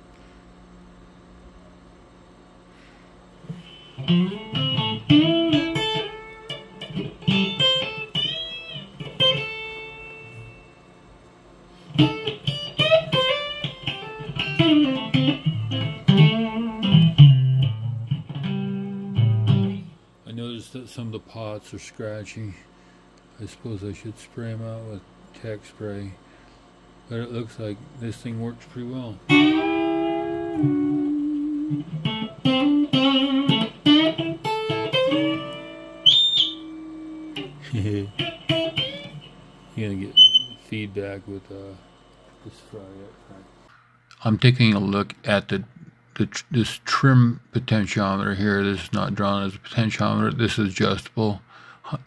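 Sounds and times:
electric guitar notes with slides: 3.5 - 10.7, 11.9 - 20.0, 29.3 - 39.3, 40.1 - 40.6.

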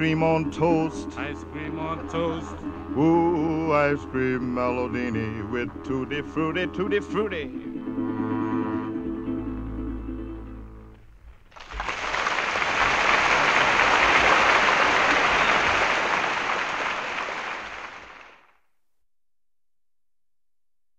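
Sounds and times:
audience applauding: 11.5 - 18.5.

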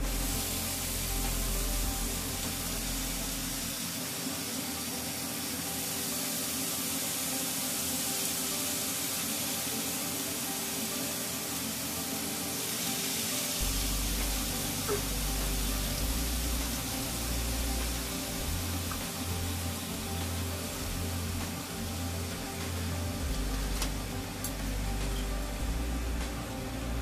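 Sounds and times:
low steady hum: 0.0 - 3.8, 13.6 - 27.0
bacon sizzling in a frying pan: 0.0 - 27.0.

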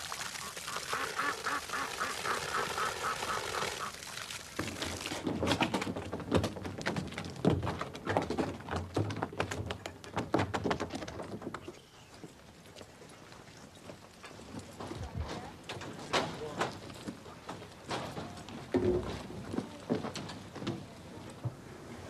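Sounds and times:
liquid glugging as it pours: 0.0 - 5.5.

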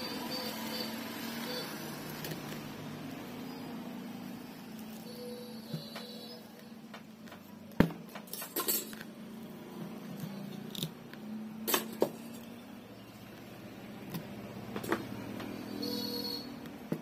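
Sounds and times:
metallic clinks and knocks: 8.1 - 9.1.

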